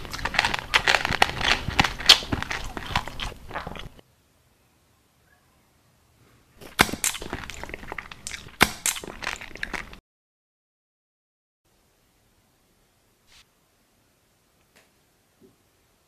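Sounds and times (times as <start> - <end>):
crisp food crunching: 0.0 - 4.0, 6.6 - 10.0.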